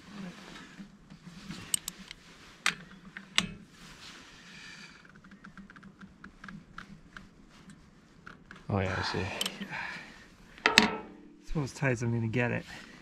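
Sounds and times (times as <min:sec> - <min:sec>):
sharp metal knocks: 0:10.6 - 0:11.4.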